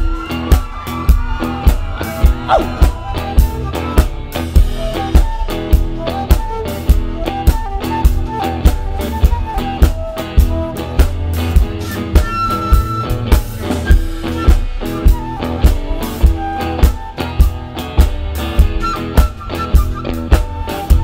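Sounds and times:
drum kit beat: 0:00.0 - 0:21.0
electric bass: 0:00.0 - 0:21.0
electric guitar: 0:00.0 - 0:21.0.

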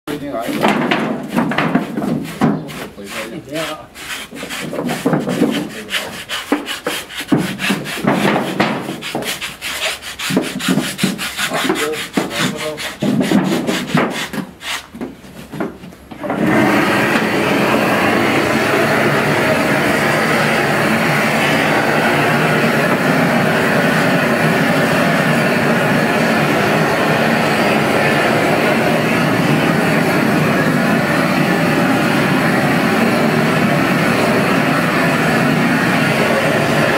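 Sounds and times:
propane torch hissing: 0:16.3 - 0:36.9.

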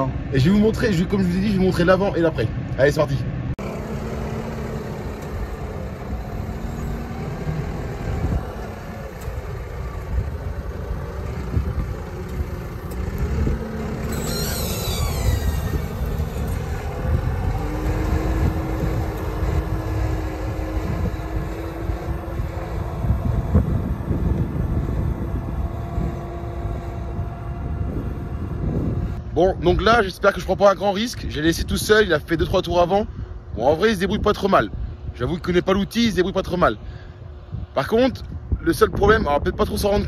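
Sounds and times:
high whine falling in pitch: 0:03.6 - 0:24.6
tractor engine under load: 0:03.6 - 0:29.2.

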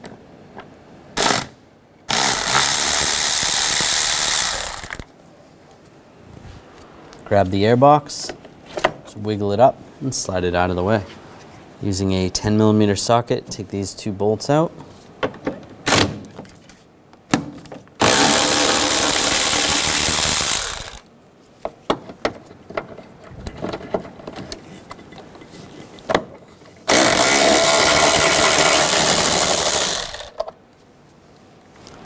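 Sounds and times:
cordless power tool spinning: 0:02.1 - 0:05.1, 0:18.0 - 0:21.0, 0:26.9 - 0:30.4.

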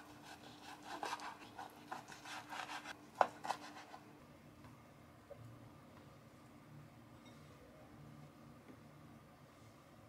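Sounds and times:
knife sawing on cutting board: 0:00.0 - 0:04.0.

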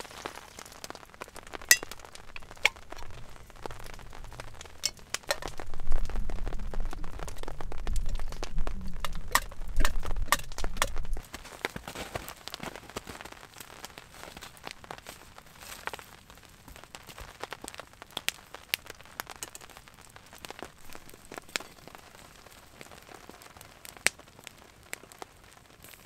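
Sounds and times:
glass jar knocking on metal pot: 0:01.7 - 0:02.8, 0:09.0 - 0:11.1
low rumble: 0:01.8 - 0:11.2.

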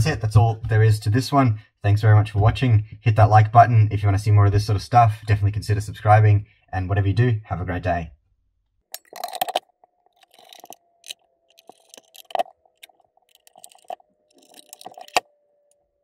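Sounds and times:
metal cover clicks and scrapes: 0:09.0 - 0:15.2.

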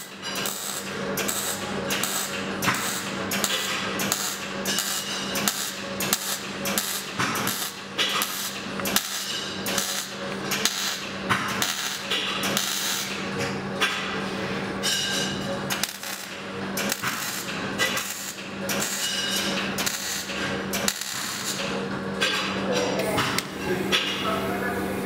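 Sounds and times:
welding arc crackling: 0:00.0 - 0:13.2, 0:15.7 - 0:19.1, 0:19.8 - 0:21.7.

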